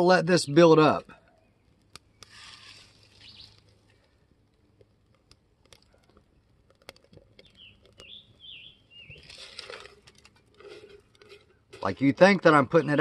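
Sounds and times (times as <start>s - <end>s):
leaves burning with crackling pops: 0.0s - 13.0s
bird chirping: 3.0s - 3.7s, 7.4s - 9.7s.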